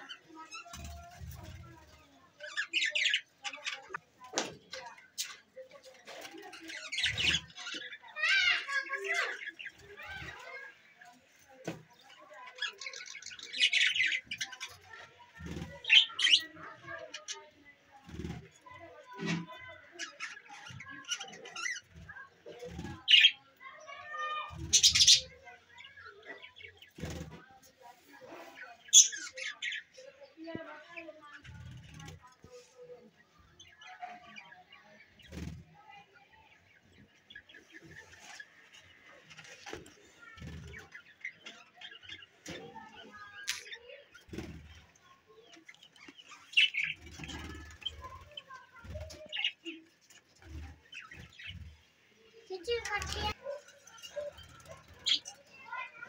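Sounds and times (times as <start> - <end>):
harsh bird calls: 0.0 - 32.5, 33.2 - 56.0
budgerigars chattering: 24.7 - 25.3, 46.1 - 48.1
budgerigars chirping: 24.7 - 25.3
wing flutters: 46.3 - 51.8.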